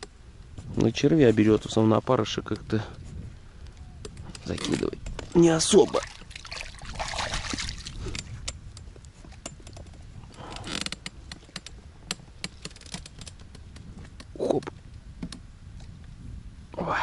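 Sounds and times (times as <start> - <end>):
rustle: 0.0 - 17.0
fishing tackle clicks and rattles: 4.1 - 5.4, 7.9 - 14.3.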